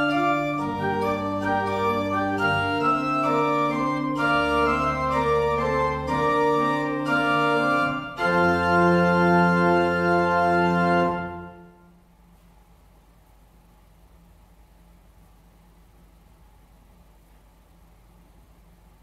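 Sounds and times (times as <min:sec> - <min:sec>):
church organ chords: 0:00.0 - 0:11.9.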